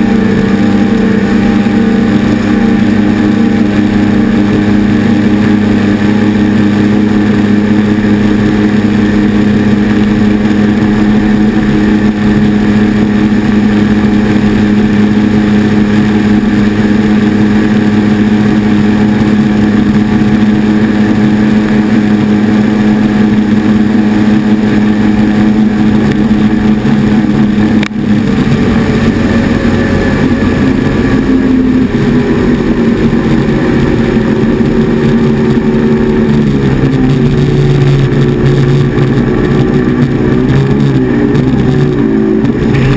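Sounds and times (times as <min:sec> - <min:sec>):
outboard engine at high revs: 0:00.0 - 0:42.9
rush of wind and water: 0:00.0 - 0:42.9.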